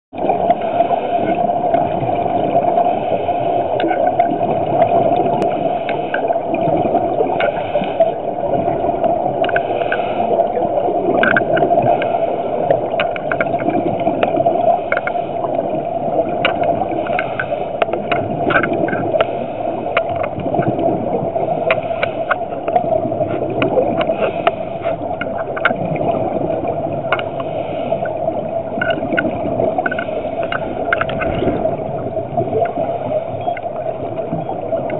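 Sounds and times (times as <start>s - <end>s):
underwater air bubbles gurgling: 0.1s - 34.9s
small clicks: 9.4s - 10.0s, 11.1s - 15.2s, 16.4s - 20.8s, 28.7s - 31.6s.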